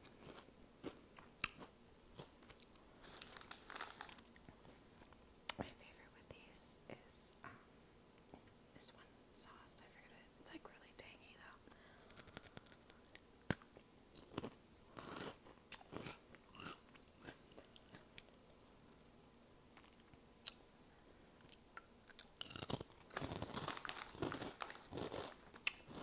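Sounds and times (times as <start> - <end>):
crunching and chewing snack: 0.0 - 5.2, 12.0 - 18.6, 21.2 - 26.0
snack bag crinkling: 0.1 - 4.6, 22.1 - 26.0.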